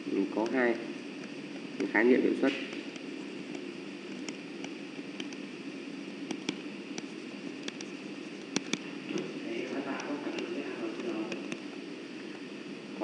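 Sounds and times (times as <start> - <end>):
microphone hiss: 0.0 - 13.0
stylus tapping on pen tablet: 2.6 - 5.4, 6.2 - 9.3, 9.9 - 11.7.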